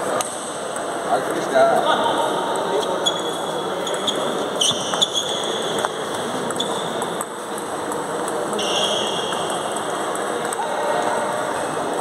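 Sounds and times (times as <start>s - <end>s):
busy hall background noise: 0.0s - 12.0s
table tennis balls clicking: 2.5s - 11.3s.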